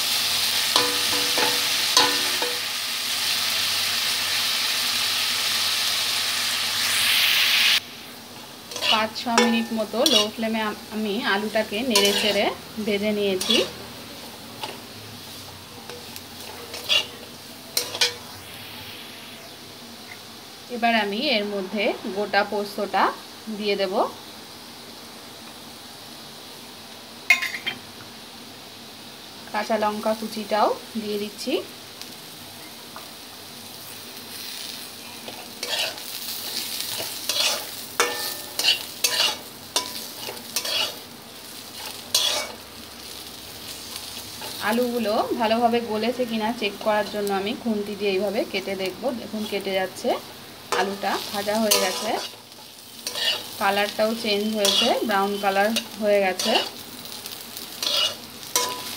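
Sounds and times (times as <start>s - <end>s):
potatoes sizzling in oil: 0.0s - 58.9s
metal spatula scraping pan: 8.7s - 10.4s, 11.9s - 12.6s, 15.9s - 18.3s, 35.3s - 36.0s, 36.9s - 41.0s, 41.8s - 42.6s, 50.8s - 52.4s, 53.0s - 53.6s, 54.6s - 56.8s, 57.8s - 58.9s.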